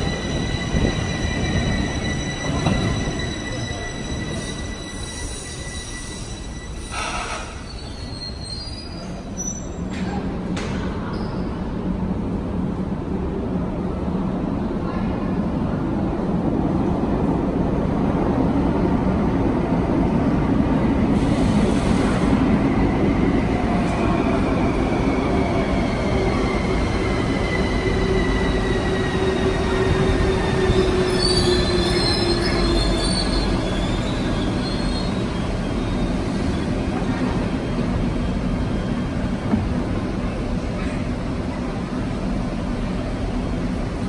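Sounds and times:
high squeals: 0.0s - 9.8s, 26.2s - 36.5s
train rumble on track: 0.0s - 44.0s.

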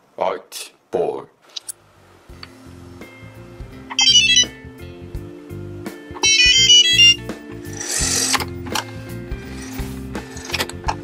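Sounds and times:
background music: 1.8s - 11.0s
electronic beep melodies: 3.9s - 4.5s, 6.2s - 7.3s.

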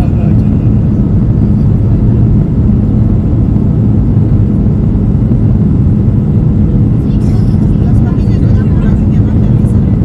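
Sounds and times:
airplane cabin engine rumble: 0.0s - 10.0s.

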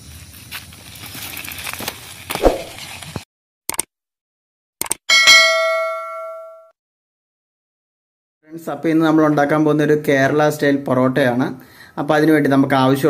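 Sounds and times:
outdoor noise: 0.0s - 3.9s
short clicks: 3.7s - 3.9s, 4.8s - 5.0s
bright bell ding: 5.1s - 6.7s.

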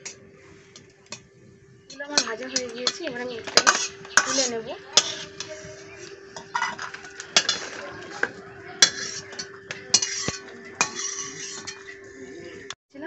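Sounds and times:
steel ladle clinking on steel: 1.9s - 12.0s.

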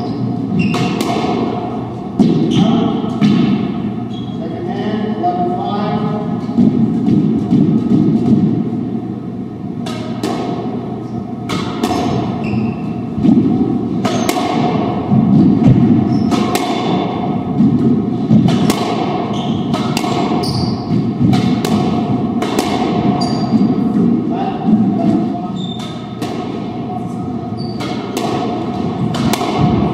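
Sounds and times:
racquets smacking ball: 0.6s - 3.7s, 9.8s - 10.8s, 11.4s - 26.9s, 27.6s - 29.9s
ball hitting court walls: 0.6s - 3.8s, 6.5s - 8.8s, 9.8s - 26.9s, 27.6s - 29.9s.

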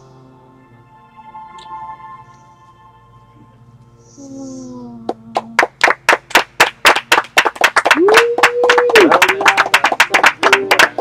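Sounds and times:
group clapping: 5.1s - 11.0s
person cheering: 7.9s - 11.0s.

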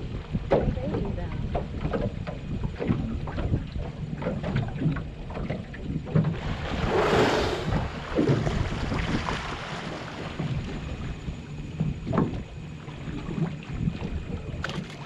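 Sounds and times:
steady low rumble: 0.0s - 15.0s
wind buffeting microphone: 0.0s - 15.0s
rushing whoosh: 6.5s - 8.0s.

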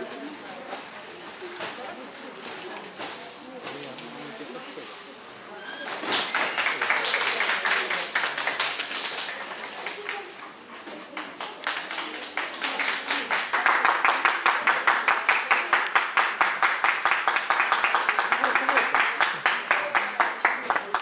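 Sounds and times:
people clapping: 5.8s - 21.0s.

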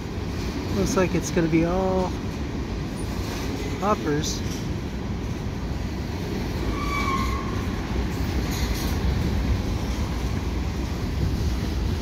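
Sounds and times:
train wheels rumbling on rails: 0.0s - 12.0s
high wheel squeal: 6.6s - 7.7s.

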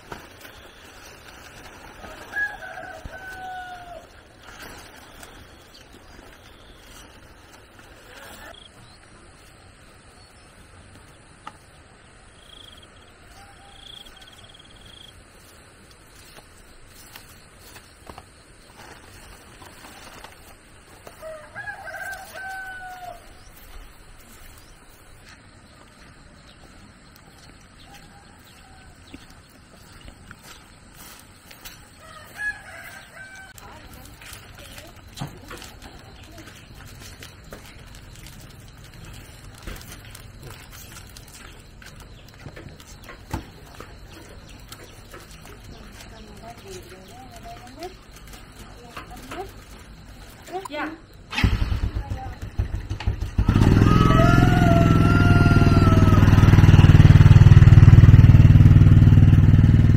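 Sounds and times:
rooster crowing: 1.9s - 4.2s, 21.0s - 23.4s, 27.4s - 29.4s, 31.9s - 33.8s, 53.4s - 57.5s.

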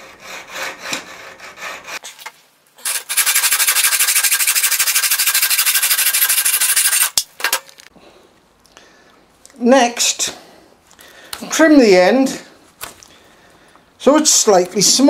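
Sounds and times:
hacksaw cutting metal tube: 0.0s - 2.0s, 2.8s - 7.6s.

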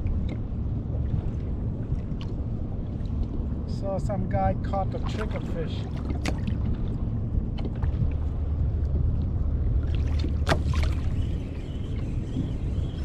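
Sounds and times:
wind rumble on microphone: 0.0s - 13.0s
water slapping against kayak hull: 5.0s - 8.3s, 9.8s - 11.3s.

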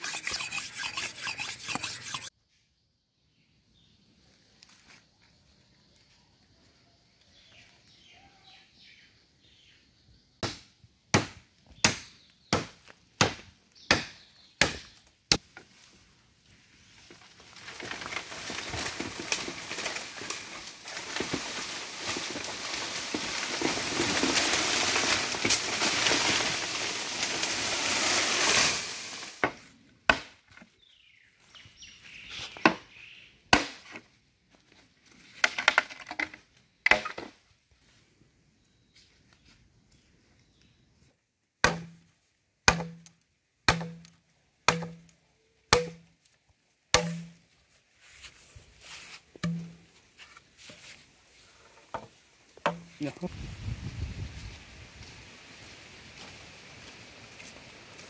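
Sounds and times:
blade chopping bamboo: 10.4s - 15.5s, 30.1s - 30.4s, 33.5s - 34.0s, 41.6s - 42.0s, 42.6s - 43.1s, 43.7s - 44.1s, 44.7s - 45.1s, 45.7s - 46.0s, 47.0s - 47.4s, 49.4s - 49.8s
bamboo leaves rustling: 15.3s - 29.8s, 44.9s - 58.0s.

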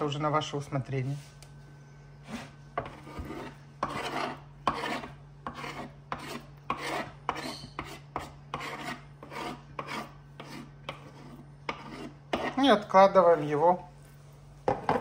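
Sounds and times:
spoon scraping cutting board: 2.2s - 13.5s.

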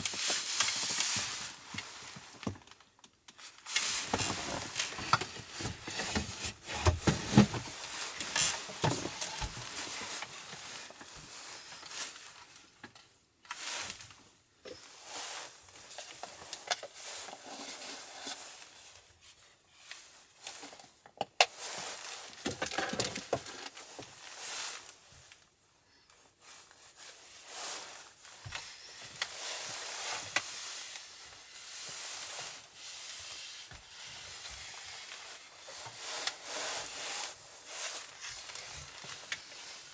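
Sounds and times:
paper tissues rustling: 0.0s - 2.8s, 3.4s - 12.7s, 26.1s - 39.9s.

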